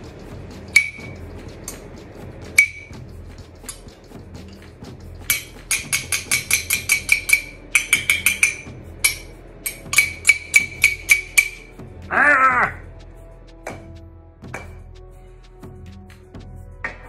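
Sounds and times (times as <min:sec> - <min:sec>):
knife clinking on glass bottle: 0:05.3 - 0:11.6.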